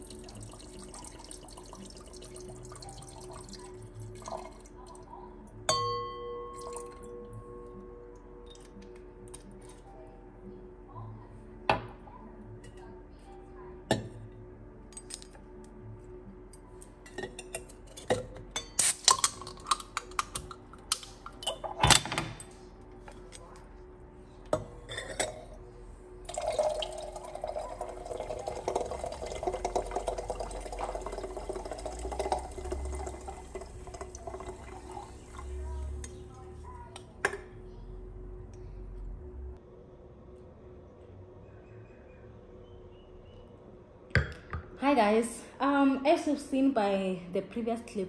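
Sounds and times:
liquid pouring and fizzing: 0:00.0 - 0:04.9, 0:26.2 - 0:36.0.

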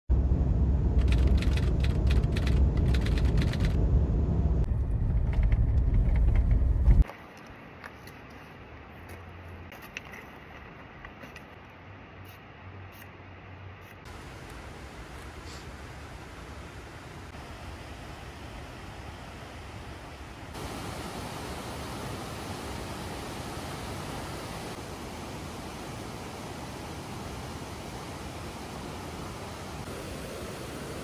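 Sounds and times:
car road noise rumble: 0:00.1 - 0:07.1
faint hiss: 0:13.9 - 0:31.0.

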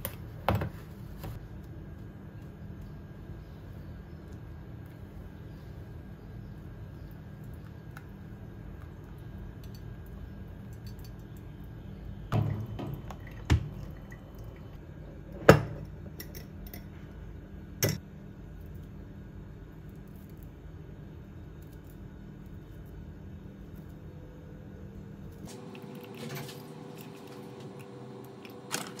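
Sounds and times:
steady low hum: 0:00.0 - 0:29.0
coffee dripping: 0:07.0 - 0:14.8, 0:25.5 - 0:29.0.

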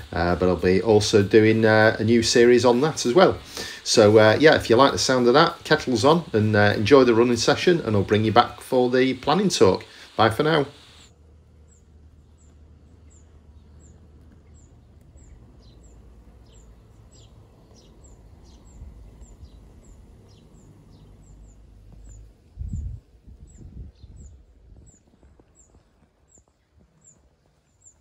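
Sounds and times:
steady low hum: 0:00.0 - 0:25.0
birds chirping: 0:00.0 - 0:28.0
loud low rumbles: 0:11.2 - 0:24.9.

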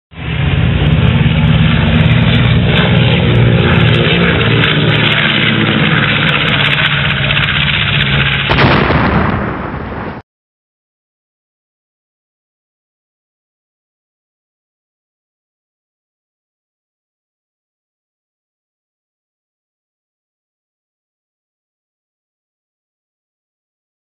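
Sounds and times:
jet aircraft roaring overhead: 0:00.1 - 0:10.2.

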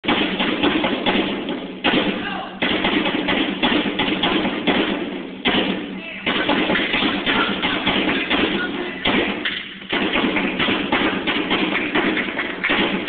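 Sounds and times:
live drums playing: 0:03.5 - 0:09.4.

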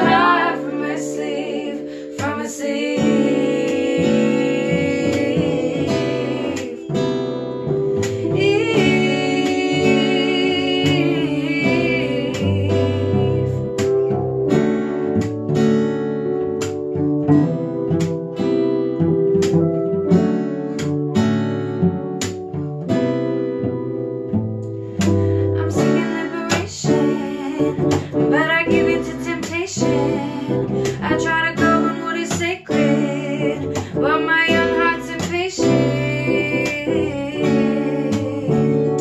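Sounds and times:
women singing: 0:00.0 - 0:14.2, 0:25.3 - 0:39.0
bowed cello: 0:00.0 - 0:39.0
strummed acoustic guitar: 0:00.0 - 0:39.0.

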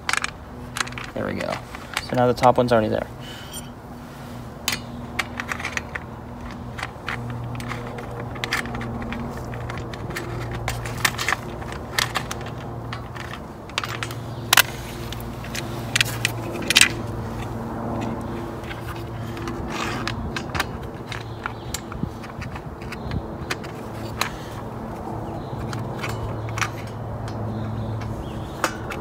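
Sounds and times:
small metallic rattles: 0:00.0 - 0:03.8, 0:04.6 - 0:29.0.

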